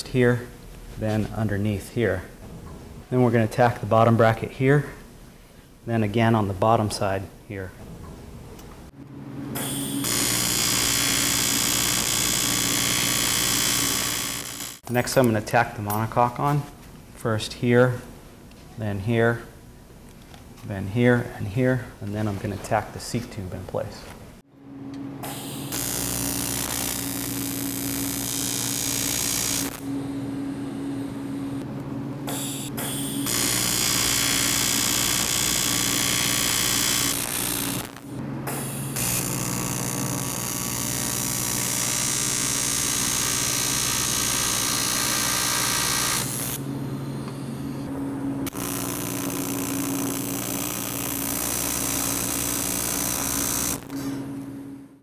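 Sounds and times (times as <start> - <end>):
welding arc buzzing and hissing: 9.6 - 14.9, 25.2 - 31.6, 32.3 - 54.2.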